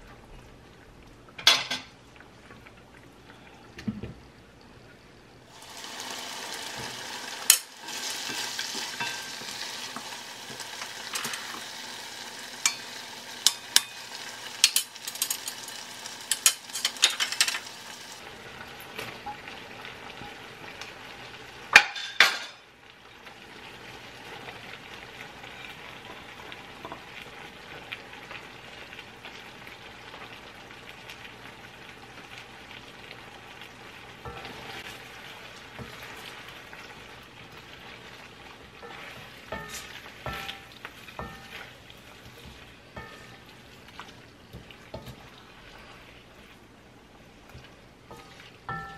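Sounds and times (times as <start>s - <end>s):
stew sizzling and bubbling: 0.0s - 48.9s
peppers clattering into pan: 5.6s - 18.2s, 21.7s - 22.6s, 38.8s - 41.7s, 48.1s - 48.9s.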